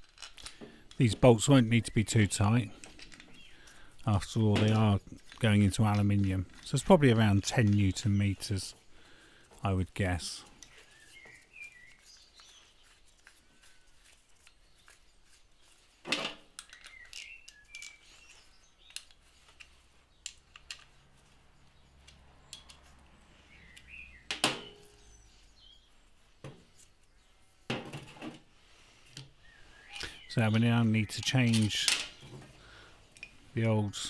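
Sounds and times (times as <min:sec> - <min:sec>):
metal parts clinking: 0:00.0 - 0:08.1, 0:16.2 - 0:21.0, 0:31.1 - 0:32.3.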